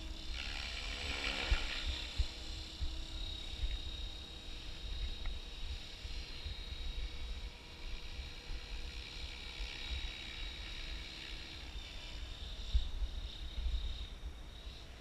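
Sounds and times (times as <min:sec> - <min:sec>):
rc helicopter motor whine: 0:00.0 - 0:15.0
wind rumble on microphone: 0:00.0 - 0:15.0.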